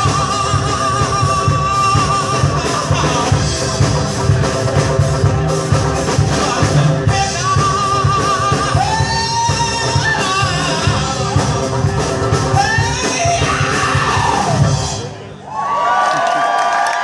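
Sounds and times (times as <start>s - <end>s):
man singing long notes: 0.0s - 3.6s, 6.2s - 11.8s, 12.5s - 14.9s
live rock band playing: 0.0s - 15.5s.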